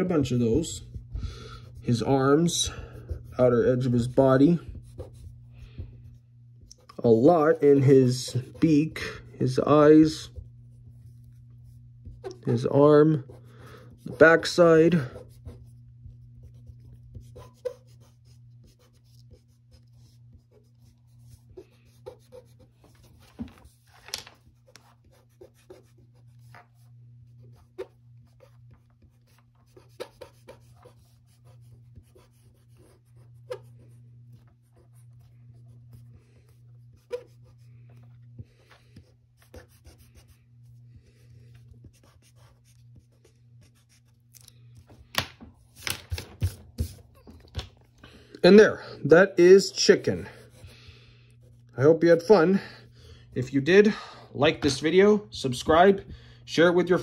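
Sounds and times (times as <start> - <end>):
steady low hum: 0.0 - 57.0
pen scratching on paper: 0.2 - 6.2, 6.8 - 37.8, 38.5 - 44.2.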